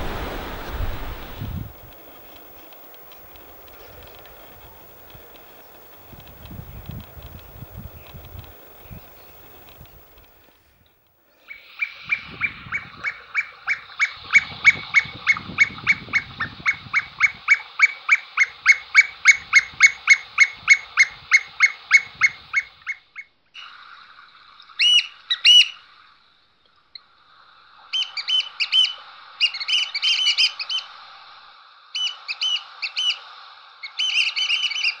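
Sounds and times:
steady hiss: 0.0 - 35.0
birds piping whistled calls: 11.3 - 23.8, 24.7 - 26.0, 27.9 - 31.0, 31.9 - 35.0.

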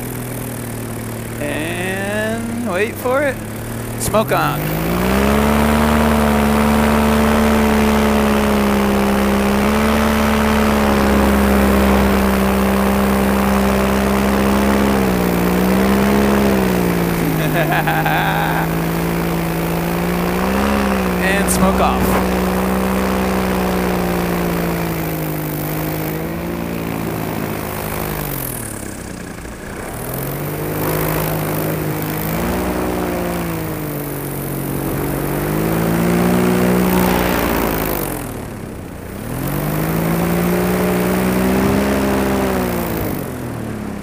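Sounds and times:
paramotor engine and propeller: 0.0 - 44.0.

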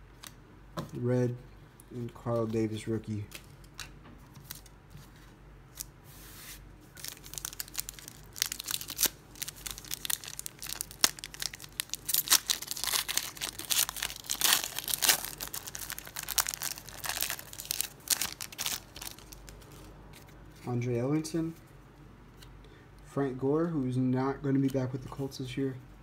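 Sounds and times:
foil wrapper crinkling: 7.0 - 19.9.

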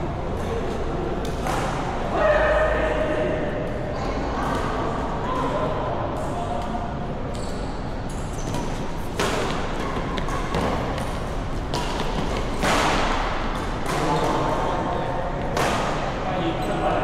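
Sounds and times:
rackets hitting shuttlecock: 8.6 - 14.5, 15.4 - 16.1.

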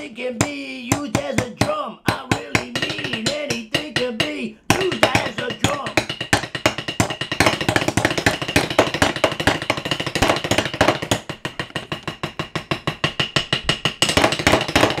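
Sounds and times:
utensils drumming on countertop and pans: 0.9 - 15.0.

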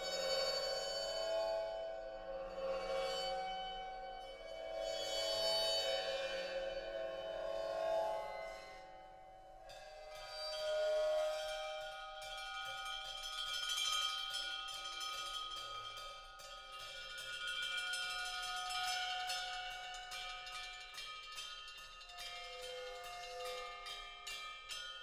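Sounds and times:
small metal percussion struck: 9.7 - 25.0.

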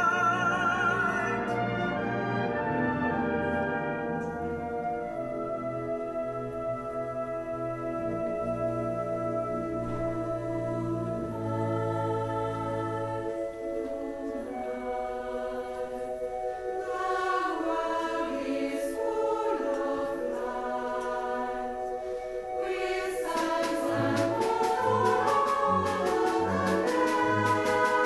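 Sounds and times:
choir singing held notes: 0.0 - 28.0
instrumental accompaniment: 0.0 - 28.0
ticking beat: 19.6 - 28.0.

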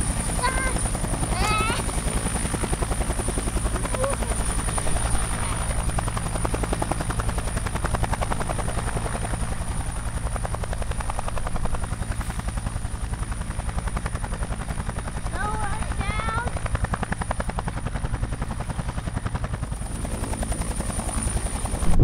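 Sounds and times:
drone propellers buzzing: 0.0 - 7.4, 21.1 - 22.0.

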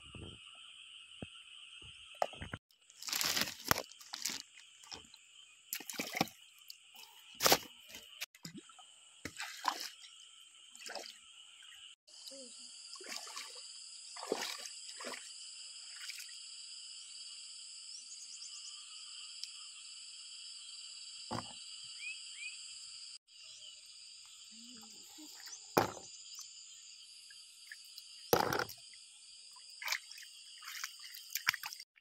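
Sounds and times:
water sloshing and splashing: 2.2 - 11.9, 12.9 - 15.3, 27.7 - 28.9, 29.6 - 31.9
plastic bag crinkling: 3.0 - 4.4.

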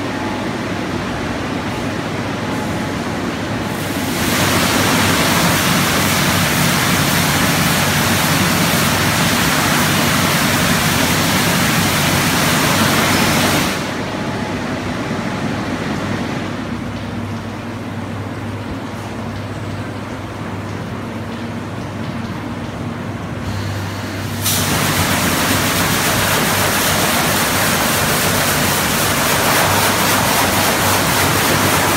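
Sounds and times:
car wash water spray hiss: 3.6 - 14.1, 23.4 - 31.9.

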